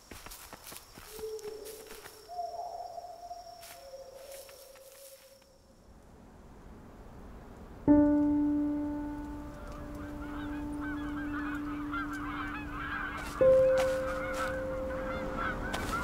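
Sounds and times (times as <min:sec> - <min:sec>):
geese honking: 0:09.4 - 0:16.0.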